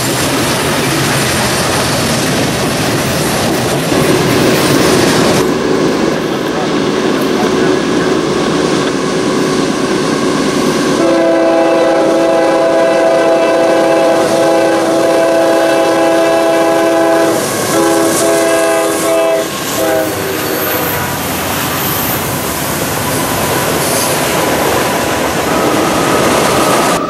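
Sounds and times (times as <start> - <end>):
train rumbling: 0.0 - 27.0
locomotive air horn: 11.0 - 21.2.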